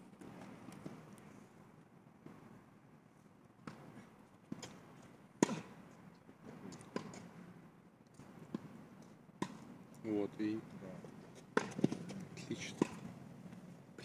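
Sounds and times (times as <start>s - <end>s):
tennis ball bouncing on court: 3.6s - 3.9s, 4.5s - 5.9s, 6.5s - 7.3s, 8.2s - 8.8s, 9.4s - 9.8s, 11.4s - 13.1s
tennis ball struck by rackets: 3.6s - 7.4s, 8.2s - 8.8s, 9.4s - 9.8s, 11.5s - 13.2s.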